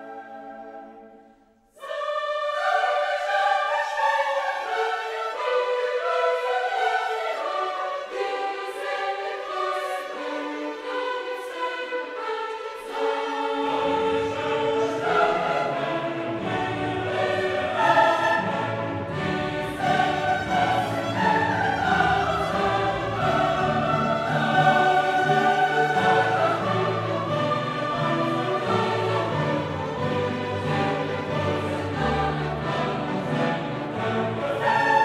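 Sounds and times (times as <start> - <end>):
choir singing: 0.0 - 35.0
orchestra playing: 13.0 - 35.0.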